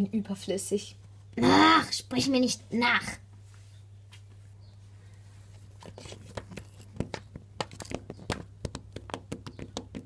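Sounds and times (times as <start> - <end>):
toy horse hooves tapping on wood: 5.8 - 10.0.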